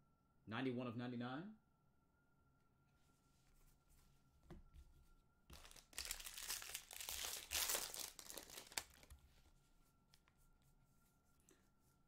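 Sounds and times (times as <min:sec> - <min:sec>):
foil wrapper tearing and crinkling: 0:05.5 - 0:09.1.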